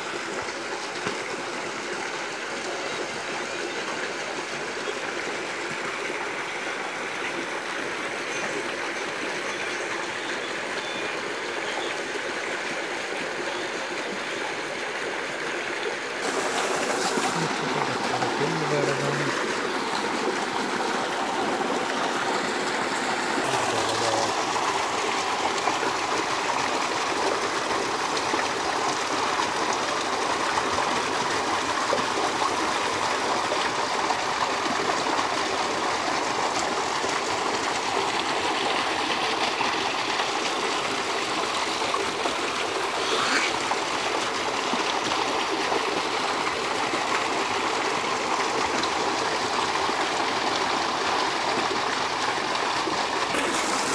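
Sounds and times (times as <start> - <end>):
water gushing into tank: 16.1 - 53.9.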